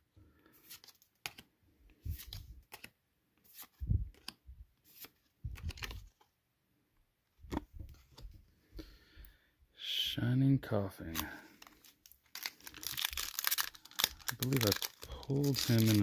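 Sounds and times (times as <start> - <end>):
trading cards flicking and rustling: 0.6 - 6.3, 11.1 - 16.0.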